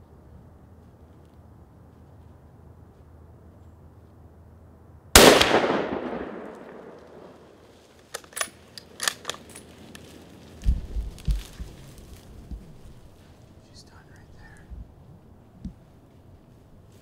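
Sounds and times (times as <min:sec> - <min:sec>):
rifle shot echoing: 0:05.1 - 0:07.7.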